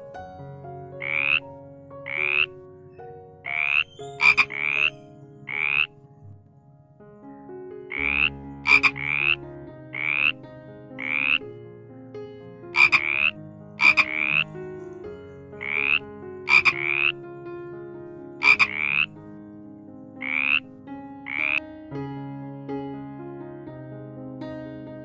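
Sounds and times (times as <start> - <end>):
frog croaking: 1.0 - 2.6, 3.4 - 6.6, 7.9 - 10.4, 11.0 - 11.5, 12.7 - 17.2, 18.4 - 19.2, 20.2 - 21.6.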